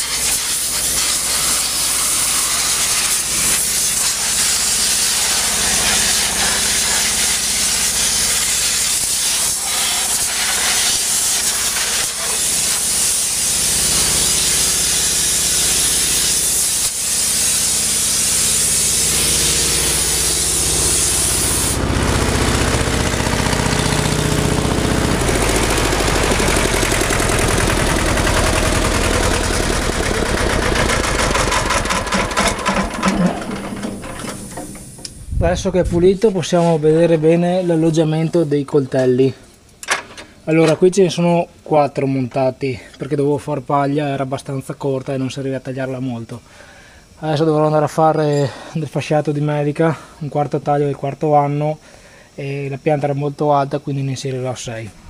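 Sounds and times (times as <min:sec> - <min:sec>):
air blow gun hissing: 0:00.0 - 0:36.9
air compressor engine running: 0:00.0 - 0:37.3.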